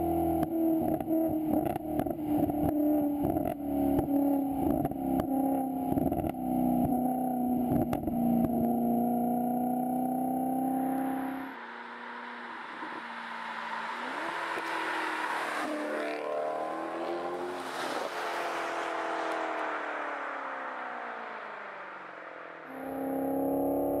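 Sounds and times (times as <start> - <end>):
sports car engine accelerating past: 0.0 - 24.0
second car passing: 11.0 - 24.0.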